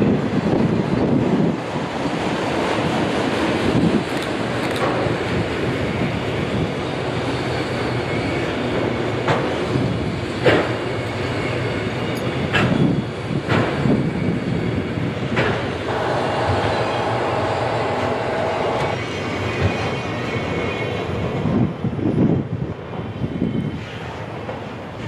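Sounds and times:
train wheels clattering: 8.7s - 11.4s, 12.0s - 14.1s, 15.2s - 20.6s
clanks over rail joints: 10.4s - 10.8s, 12.1s - 13.9s.

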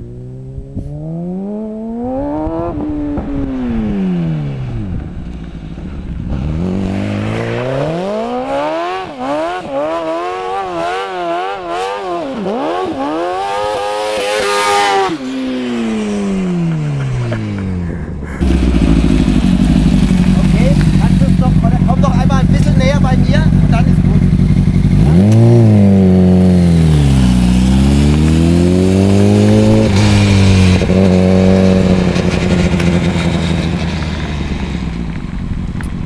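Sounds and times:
motorcycle engine revving hard: 6.3s - 17.8s, 18.4s - 35.0s.

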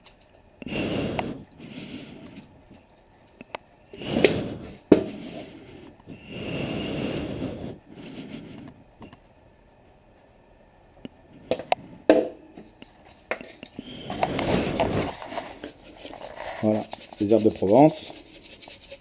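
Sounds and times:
scraping and rustling handling: 12.6s - 19.0s
spice grinder grinding: 13.0s - 19.0s.

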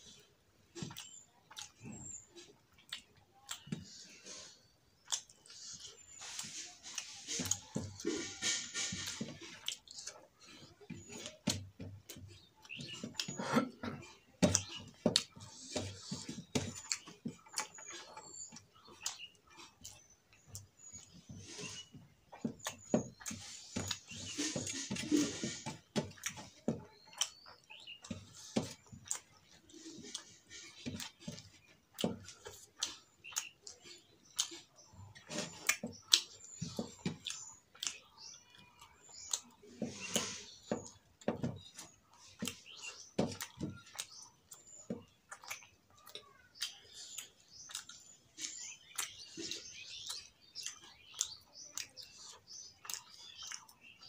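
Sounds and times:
faint birds chirping: 0.0s - 54.0s
chewing and lip smacking: 0.1s - 54.0s.

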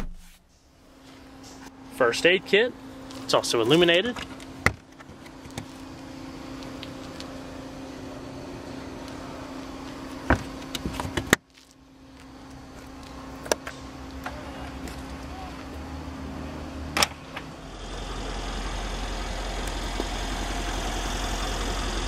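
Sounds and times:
steady low hum: 0.0s - 22.0s
power trunk lid motor hum: 4.2s - 11.4s, 12.6s - 22.0s.

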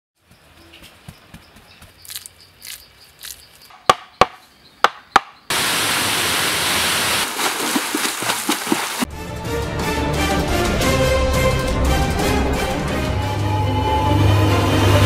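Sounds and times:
sharp knocks: 3.7s - 5.4s
waterfall rushing: 5.5s - 9.1s.

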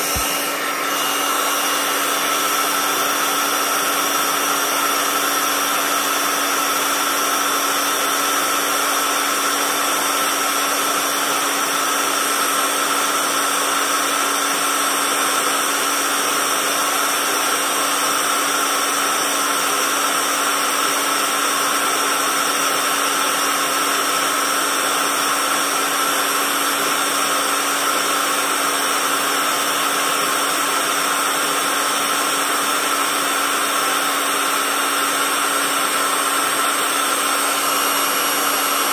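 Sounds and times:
electric air pump whirring: 0.0s - 38.9s.

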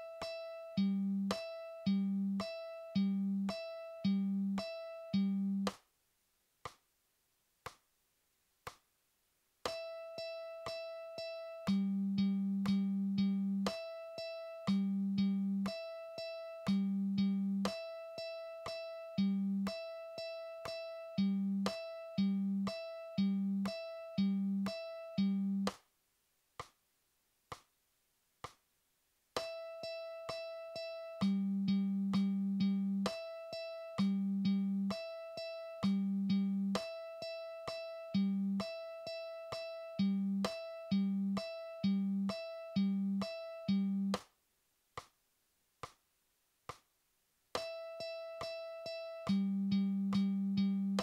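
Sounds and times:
mandolin plucking open strings: 0.0s - 5.7s
metronome click: 9.7s - 25.8s, 47.6s - 51.0s.

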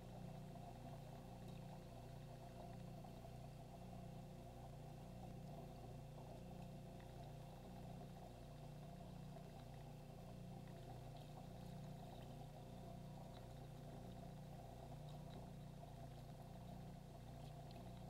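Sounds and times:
faint low hum: 0.0s - 18.0s
faint ticks: 0.0s - 18.0s.

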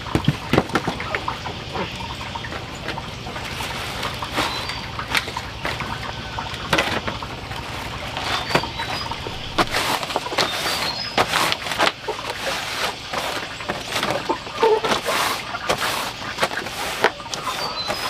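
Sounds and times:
cloth rubbing leaves: 8.1s - 18.0s.

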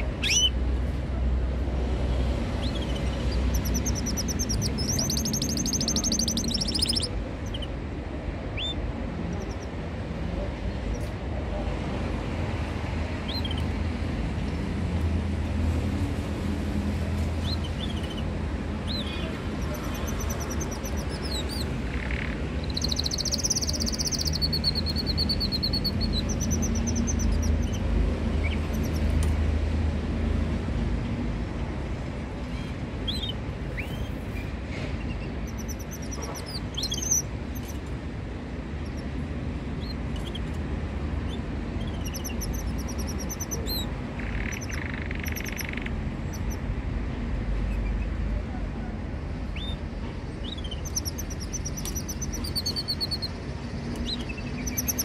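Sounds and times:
canaries chirping: 0.0s - 0.7s, 2.0s - 9.8s, 13.1s - 13.8s, 17.1s - 29.2s, 32.4s - 37.9s, 38.7s - 46.7s, 49.4s - 55.0s
steady low rumble: 0.0s - 55.0s.

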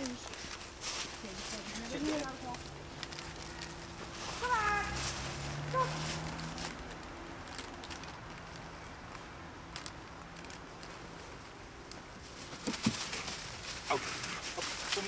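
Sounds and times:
crackles and rustles in dry leaves: 0.0s - 15.0s
woodland ambience: 0.0s - 15.0s.

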